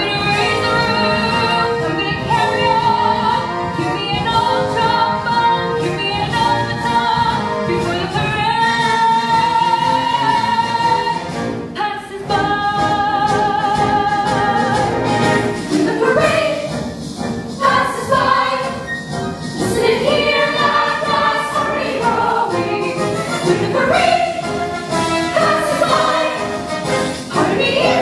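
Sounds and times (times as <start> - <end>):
instrumental accompaniment: 0.0 - 28.0
chorus singing: 12.2 - 16.9, 17.5 - 28.0.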